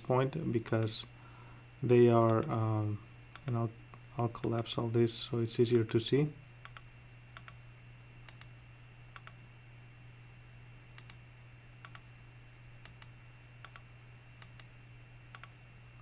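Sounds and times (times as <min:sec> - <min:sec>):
faint low hum: 0:00.0 - 0:16.0
computer mouse clicks: 0:03.3 - 0:04.6, 0:06.6 - 0:07.6, 0:08.2 - 0:08.5, 0:09.1 - 0:09.4, 0:10.9 - 0:11.2, 0:11.8 - 0:12.1, 0:12.8 - 0:14.7, 0:15.3 - 0:15.6.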